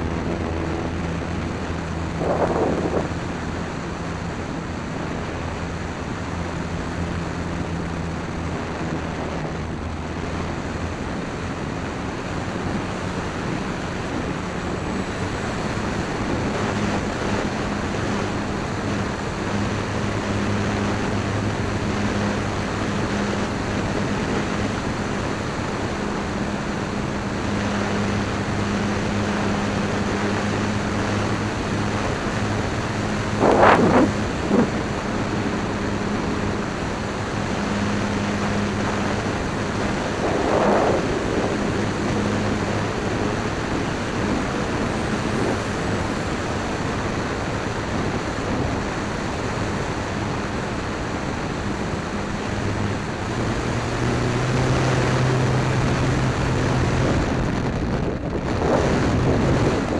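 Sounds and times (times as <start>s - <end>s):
wind rushing over microphone: 0.0s - 59.9s
electric motor propeller hum: 12.3s - 47.9s.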